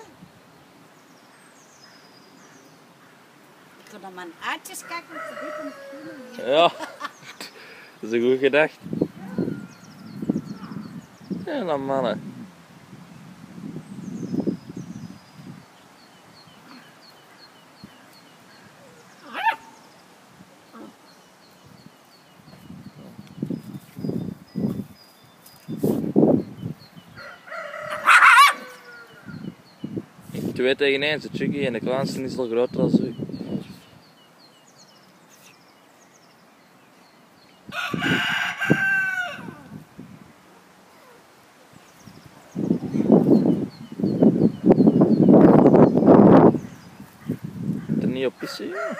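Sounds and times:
faint bird chirping: 0:00.0 - 0:11.9, 0:13.8 - 0:30.1, 0:31.9 - 0:37.8, 0:40.5 - 0:48.7
rooster crowing: 0:04.8 - 0:06.5, 0:09.2 - 0:10.8, 0:27.2 - 0:29.4, 0:37.7 - 0:39.7, 0:48.4 - 0:48.9
dog yelping: 0:19.2 - 0:19.8, 0:28.0 - 0:28.8
dog crying: 0:28.0 - 0:28.8.

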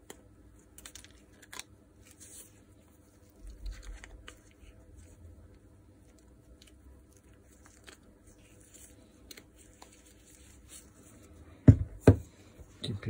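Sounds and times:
gloved hands rustling: 0:02.0 - 0:12.7.

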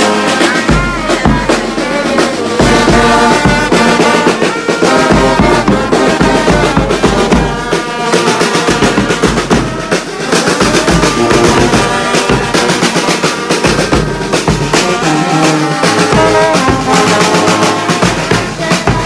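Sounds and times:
bass drum beat: 0:00.0 - 0:19.0
brass horns playing held notes: 0:00.0 - 0:19.0.

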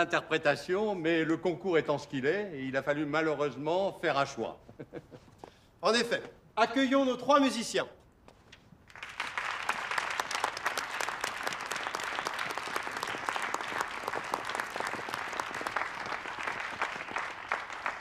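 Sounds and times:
audience applauding: 0:08.9 - 0:18.0.

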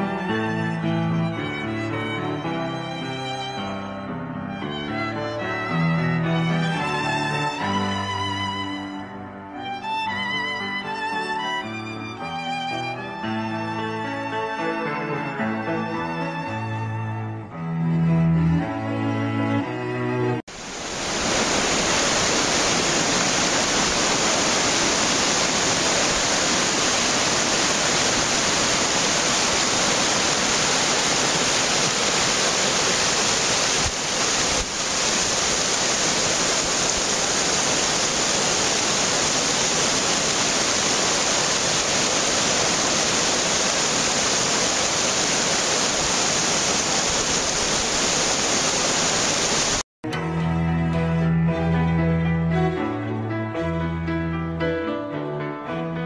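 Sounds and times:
whitewater rushing over boulders: 0:20.5 - 0:49.8.

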